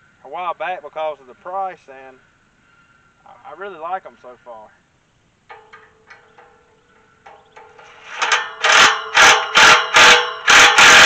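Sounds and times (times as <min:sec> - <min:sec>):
impact driver hammering bursts: 0:07.6 - 0:11.0.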